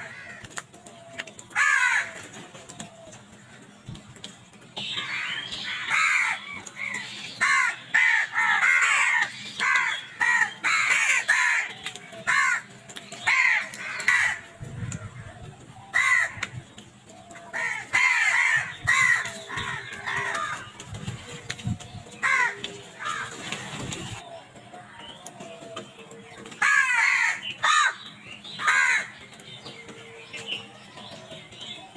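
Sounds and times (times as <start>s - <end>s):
crows cawing: 0.0s - 2.3s, 5.0s - 14.6s, 15.9s - 16.6s, 17.3s - 20.8s, 22.2s - 23.6s, 26.6s - 29.2s.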